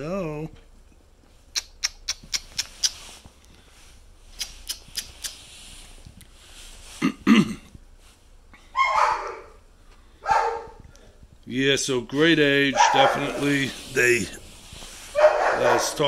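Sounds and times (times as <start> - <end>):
puppy whining: 8.8 - 9.6
puppy yipping: 8.8 - 9.6, 15.2 - 16.0.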